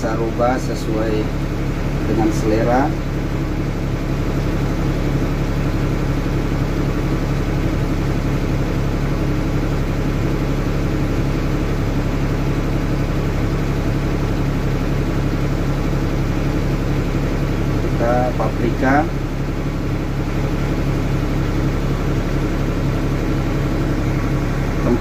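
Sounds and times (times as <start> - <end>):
low machine hum: 0.0 - 25.0.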